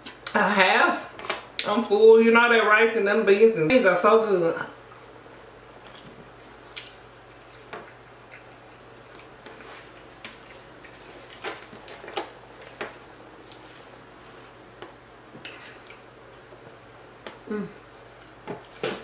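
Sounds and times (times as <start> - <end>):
soft chewing: 4.8 - 19.0.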